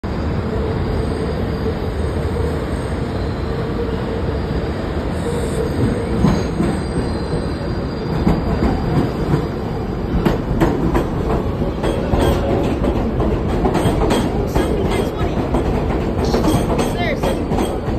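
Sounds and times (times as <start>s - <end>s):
train rumble: 0.0s - 17.9s
wheel squeal: 4.4s - 9.1s
wheels clicking over rail joints: 10.1s - 17.9s.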